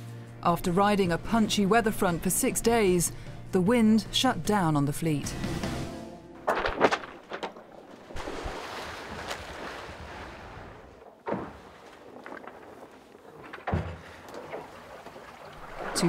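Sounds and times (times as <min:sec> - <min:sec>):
thump: 0:13.6 - 0:14.2.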